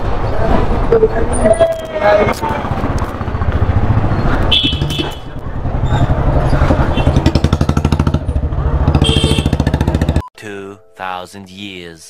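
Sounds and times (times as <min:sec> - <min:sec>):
motorcycle engine running: 0:02.6 - 0:10.2.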